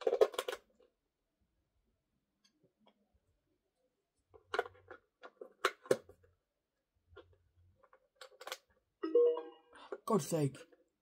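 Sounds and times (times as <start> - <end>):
plastic toy clicks and knocks: 0.0 - 0.7, 8.2 - 8.7.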